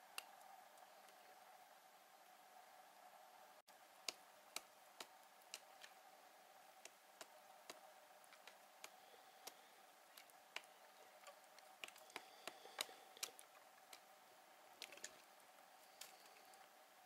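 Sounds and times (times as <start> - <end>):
woodpecker tapping on log: 11.3 - 14.0.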